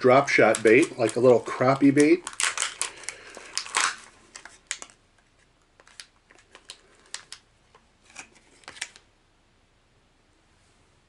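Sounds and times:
plastic package crackling: 0:00.0 - 0:07.4.

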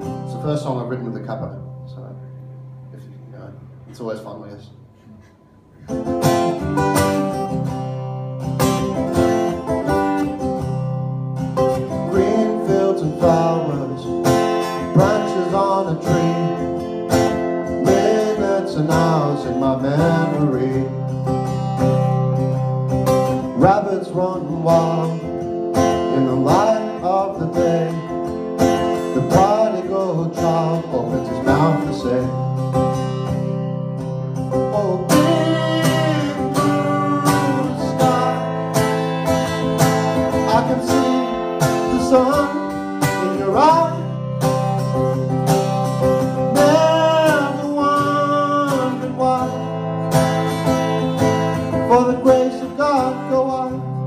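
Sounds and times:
acoustic guitar strumming: 0:00.0 - 0:54.0
person singing: 0:11.9 - 0:14.2, 0:17.8 - 0:21.0, 0:34.6 - 0:38.8, 0:40.3 - 0:44.2, 0:46.6 - 0:49.6.

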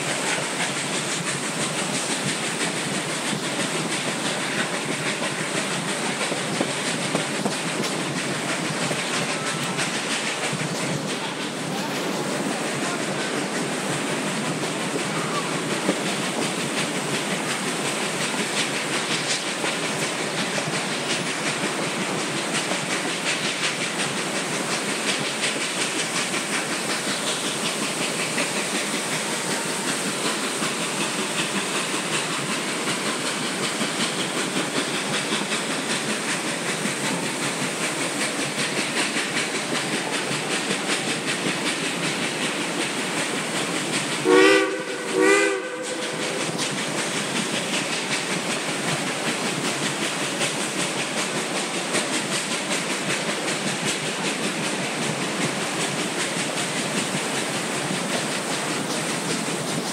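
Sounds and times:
steam hissing: 0:00.0 - 0:59.9
train wheels clattering on rails: 0:00.0 - 0:59.9
steam locomotive whistle: 0:44.2 - 0:46.4.

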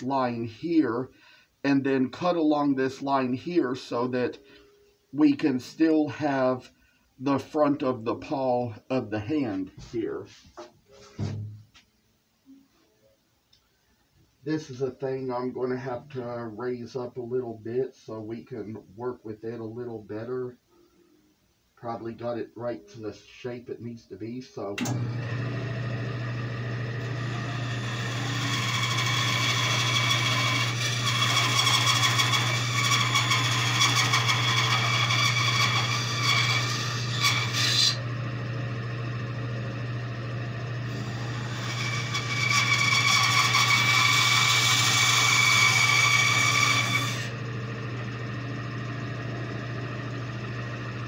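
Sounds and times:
bandsaw humming: 0:24.8 - 0:51.0
saw blade cutting wood: 0:27.2 - 0:38.1, 0:40.8 - 0:47.4.

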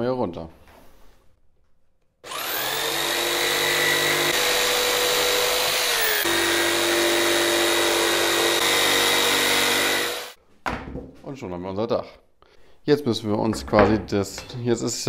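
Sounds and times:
electric jigsaw cutting board: 0:02.2 - 0:10.4.

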